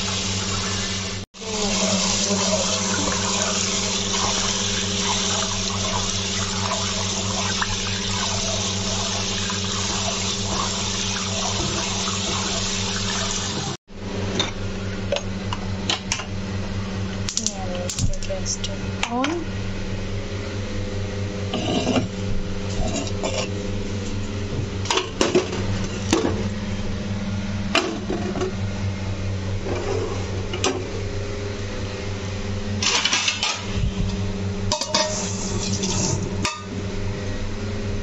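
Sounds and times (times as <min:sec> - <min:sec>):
metal pots and utensils clinking: 0:22.7 - 0:23.5, 0:34.7 - 0:36.7.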